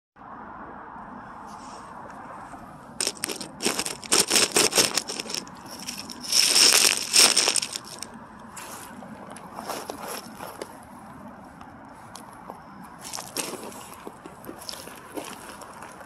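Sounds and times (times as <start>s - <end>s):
loud rustling and crunching: 3.0s - 10.8s, 13.0s - 16.0s.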